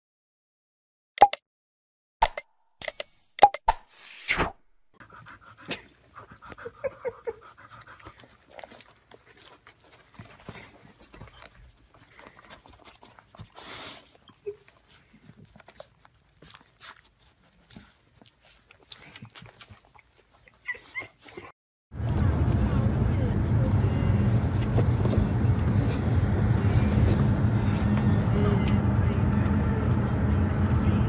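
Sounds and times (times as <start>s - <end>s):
puppy sucking and smacking: 7.8s - 21.5s.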